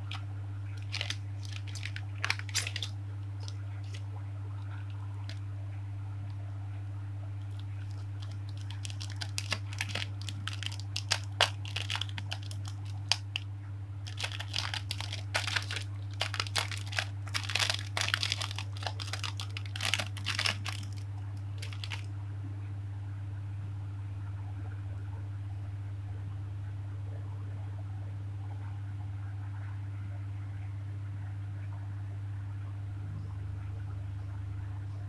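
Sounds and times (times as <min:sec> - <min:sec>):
plastic bag crinkling: 0:00.0 - 0:00.2, 0:00.8 - 0:04.0, 0:04.6 - 0:05.4, 0:07.4 - 0:13.4, 0:14.0 - 0:22.1
low hum: 0:00.0 - 0:35.0.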